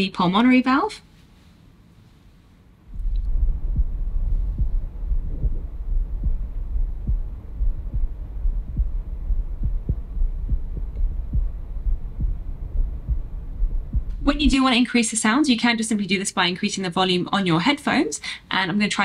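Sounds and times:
constant low rumble: 0.0 - 19.0
heartbeat lub-dub thumps: 2.9 - 14.7.

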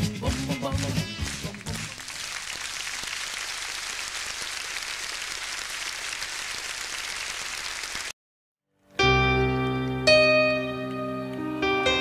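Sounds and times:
audience applause: 0.3 - 8.2.

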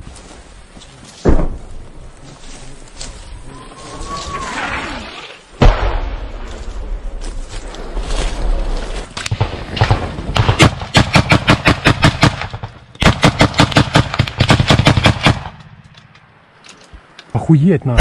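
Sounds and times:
rifle shots: 9.2 - 15.7.

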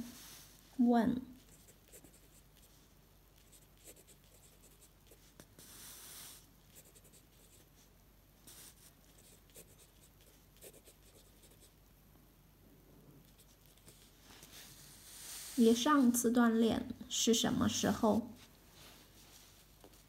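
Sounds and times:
pen nib scratching on paper: 1.4 - 2.7, 3.4 - 7.7, 8.4 - 11.7.

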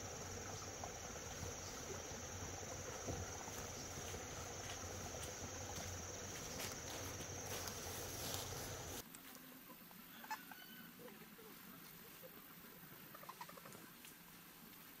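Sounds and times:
insects shrilling: 0.0 - 9.0
faint background hiss: 0.0 - 15.0.

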